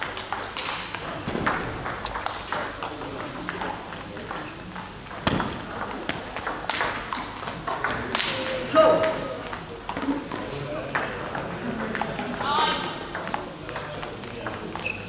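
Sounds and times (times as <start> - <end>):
table tennis ball clicking: 0.0 - 10.1.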